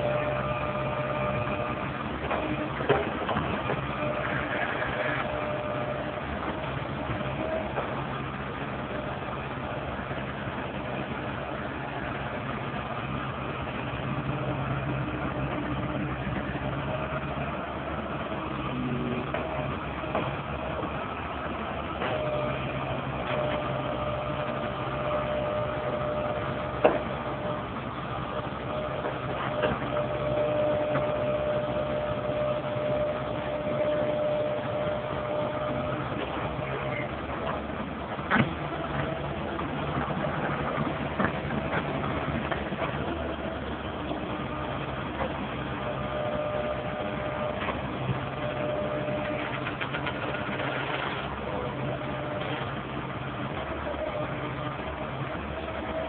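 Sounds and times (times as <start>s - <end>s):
excavator diesel engine running: 0.0s - 56.0s
high whine: 0.0s - 56.0s.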